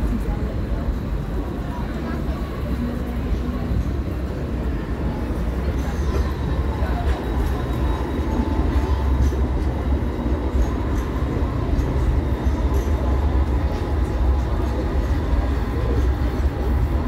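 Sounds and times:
city street noise: 0.0s - 17.0s
tram rumbling on track: 0.0s - 17.0s.

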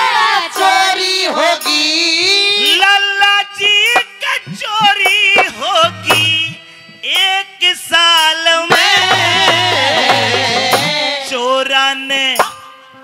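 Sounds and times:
instrumental accompaniment: 0.0s - 11.6s
man singing long ornamented notes: 1.1s - 13.0s
low drum beats: 3.9s - 6.6s, 8.7s - 11.2s.

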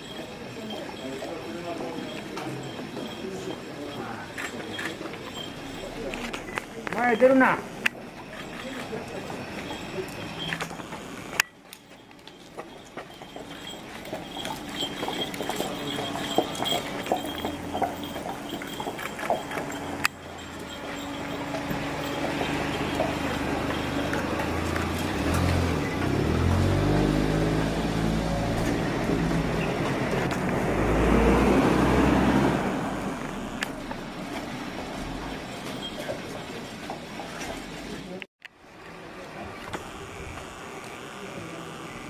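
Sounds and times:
vehicle driving past: 14.3s - 36.2s.

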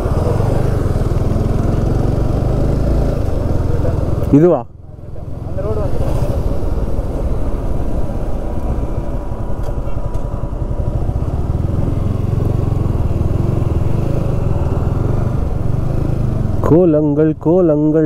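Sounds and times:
motorcycle engine rumble: 0.0s - 18.0s.

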